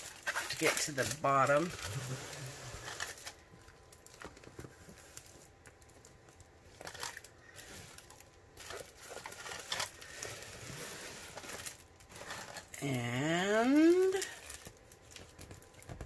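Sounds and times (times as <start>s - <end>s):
plastic film crinkling: 0.0s - 16.0s.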